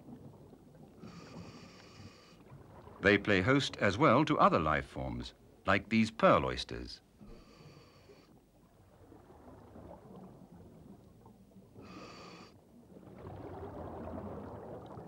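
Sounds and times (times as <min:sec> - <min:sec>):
exhaled bubbles rumbling: 0:08.6 - 0:12.0, 0:12.6 - 0:15.0.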